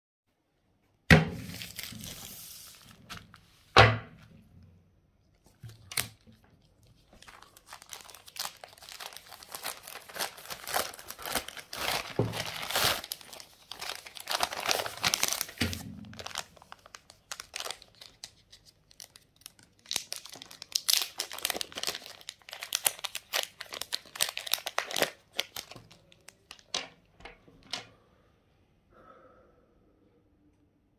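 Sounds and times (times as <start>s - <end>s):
packaging tearing: 1.4s - 3.3s, 5.7s - 26.8s
packaging crinkling and rustling: 1.4s - 3.6s, 5.4s - 27.0s.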